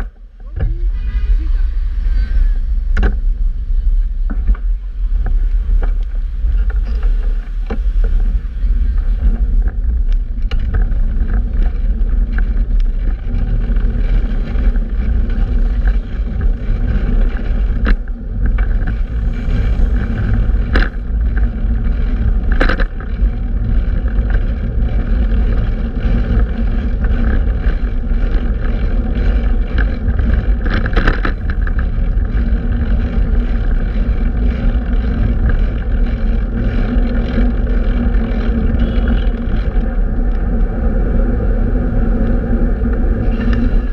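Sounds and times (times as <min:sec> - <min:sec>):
bicycle road noise: 0:00.0 - 0:43.9
wind buffeting microphone: 0:00.0 - 0:43.9.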